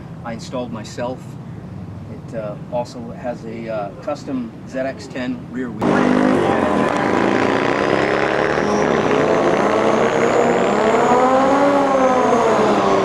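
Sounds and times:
motorcycle engine revving: 0:05.8 - 0:13.0.

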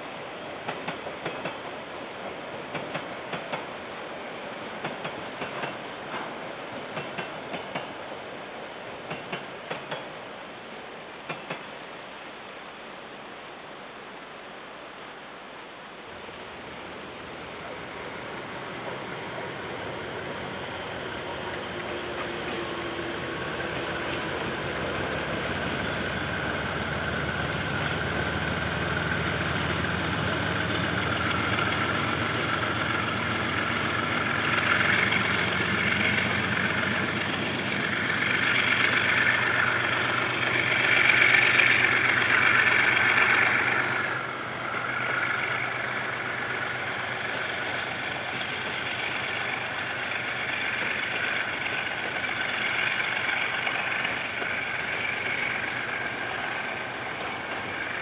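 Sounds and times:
train wagons rolling on rails: 0:00.0 - 0:10.5, 0:11.2 - 0:11.8, 0:16.2 - 0:58.0
diesel locomotive running: 0:16.3 - 0:58.0.

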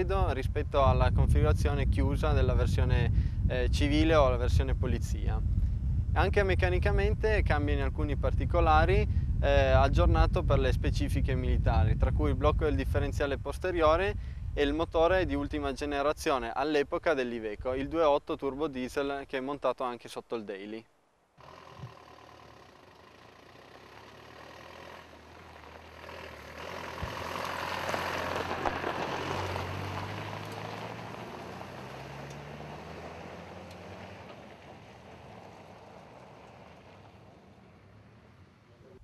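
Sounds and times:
diesel vehicle driving past: 0:21.4 - 0:39.0.

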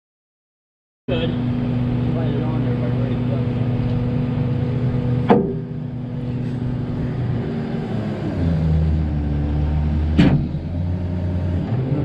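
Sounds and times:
truck engine running: 0:01.1 - 0:12.0
sharp knock: 0:05.3 - 0:05.7, 0:10.2 - 0:10.5.

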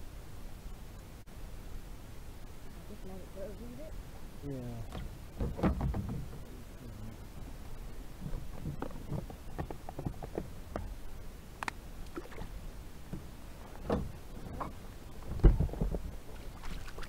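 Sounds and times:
water lapping against hull: 0:03.8 - 0:11.2, 0:12.0 - 0:17.0
light knocks on hull: 0:04.9 - 0:06.5, 0:15.2 - 0:16.1
small splashes: 0:12.0 - 0:12.6, 0:16.2 - 0:17.0.

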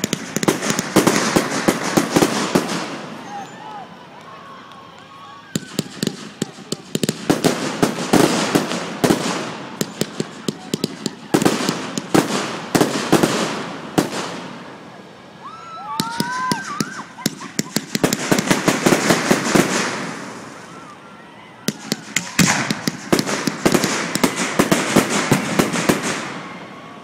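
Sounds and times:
fireworks crackling and bangs: 0:00.0 - 0:27.0.

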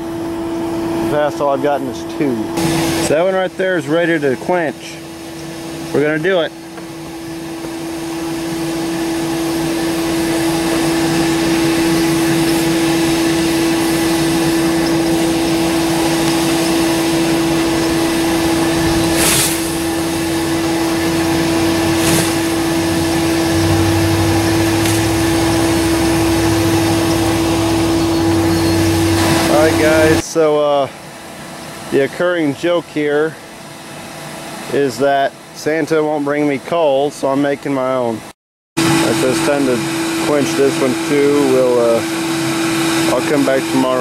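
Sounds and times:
electric air blower humming: 0:00.0 - 0:32.5, 0:38.8 - 0:44.0
low rumble: 0:12.4 - 0:30.2.

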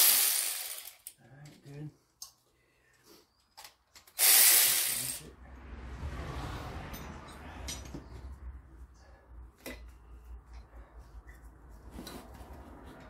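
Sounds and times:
low rumble: 0:05.2 - 0:09.4.

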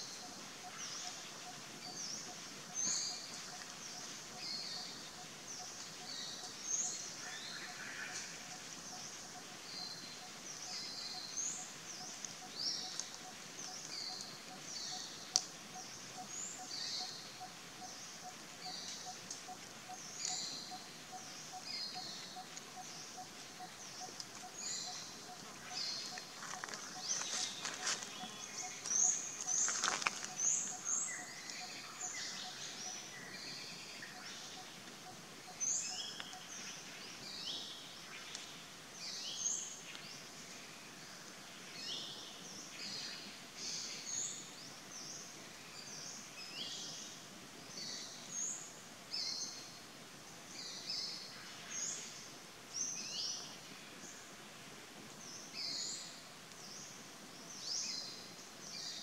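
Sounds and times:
birds chirping: 0:00.0 - 0:38.4
steady background hiss: 0:00.0 - 0:59.0.

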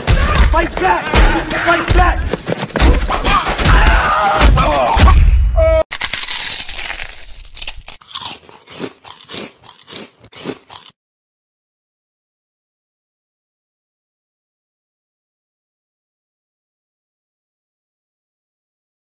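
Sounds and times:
crunchy snack chewing: 0:05.9 - 0:11.0.

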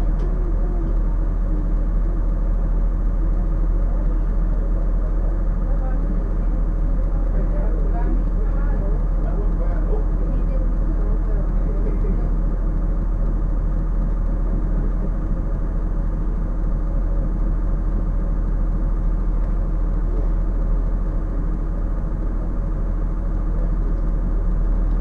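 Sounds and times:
bus diesel engine drone: 0:00.0 - 0:25.0.

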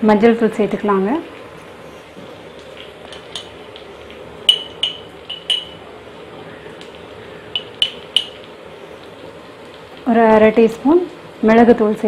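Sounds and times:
onions sizzling in oil: 0:00.5 - 0:12.0
kitchen utensils clinking: 0:04.5 - 0:05.8, 0:07.5 - 0:08.4.

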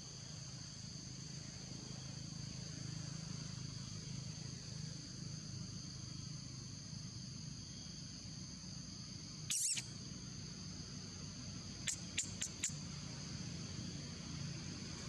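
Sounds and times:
forest insects droning: 0:00.0 - 0:15.0
high chirping bird call: 0:09.5 - 0:09.9, 0:11.8 - 0:12.8.

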